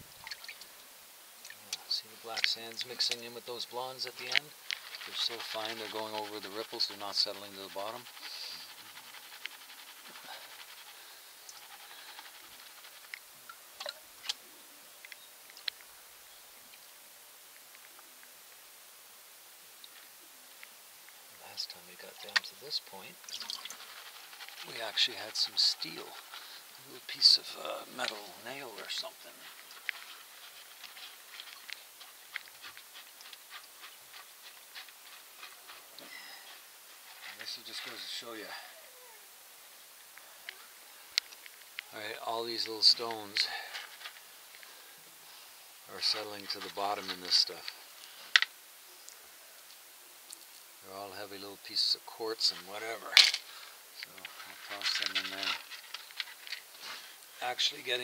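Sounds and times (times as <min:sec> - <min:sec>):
gravel clicking in plastic pan: 0:01.7 - 0:14.4, 0:21.9 - 0:38.2, 0:40.1 - 0:44.8, 0:46.0 - 0:48.6, 0:52.4 - 0:56.8
water swishing in a pan: 0:22.3 - 0:29.7
water splashing in pan: 0:23.2 - 0:23.8.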